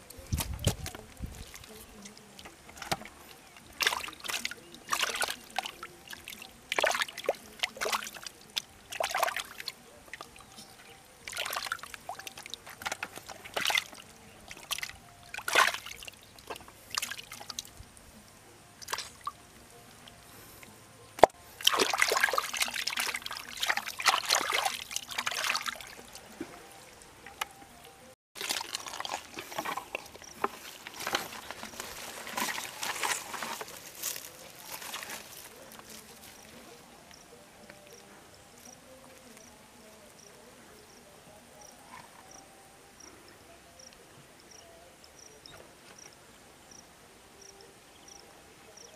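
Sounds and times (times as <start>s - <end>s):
hands splashing in muddy water: 2.8s - 10.3s, 11.3s - 17.7s, 21.2s - 26.4s, 28.4s - 35.5s
footsteps rustling through weeds: 28.4s - 36.4s.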